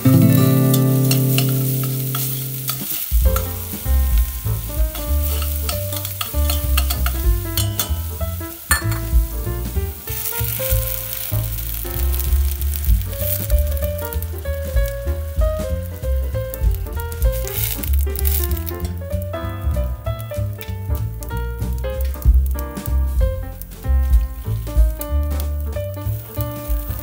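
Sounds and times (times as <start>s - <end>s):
metal tongs clacking against pan: 0.0s - 3.8s, 4.6s - 9.1s
background music: 0.0s - 27.0s
shallots sizzling in hot oil: 0.0s - 27.0s.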